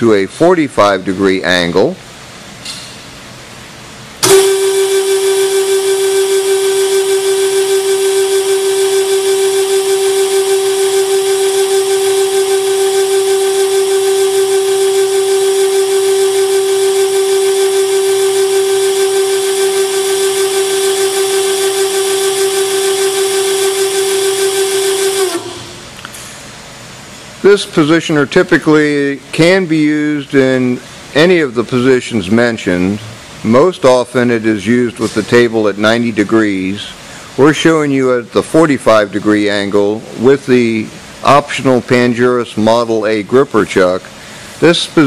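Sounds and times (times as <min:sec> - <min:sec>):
motor whine: 0:04.2 - 0:26.1.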